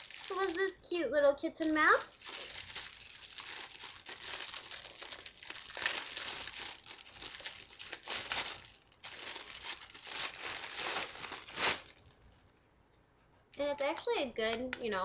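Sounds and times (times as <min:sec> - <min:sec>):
plastic bag crinkling: 0:00.0 - 0:00.9, 0:01.6 - 0:12.2.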